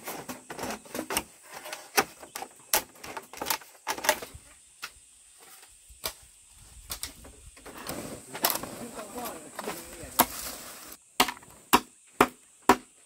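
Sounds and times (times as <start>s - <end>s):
bamboo poles knocking: 9.5s - 10.4s, 11.2s - 12.9s.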